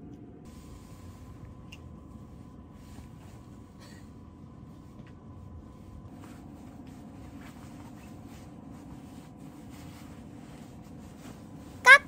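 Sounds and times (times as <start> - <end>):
steady low hum: 0.0 - 12.0
rustling and scratching on fabric: 4.7 - 12.0.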